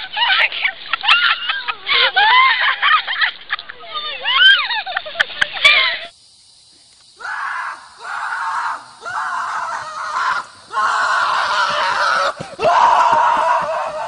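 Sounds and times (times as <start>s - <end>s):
high-pitched screams: 7.2s - 14.0s.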